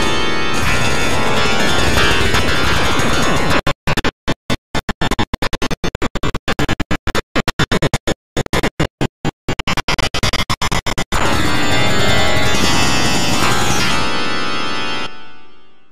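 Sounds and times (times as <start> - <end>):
stuttering synthesized note clusters: 0.0 - 3.7.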